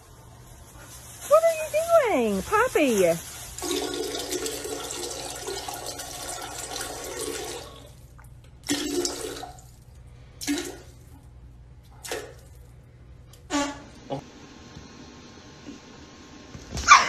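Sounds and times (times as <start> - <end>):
toilet flushing: 3.6 - 9.8, 10.4 - 11.0.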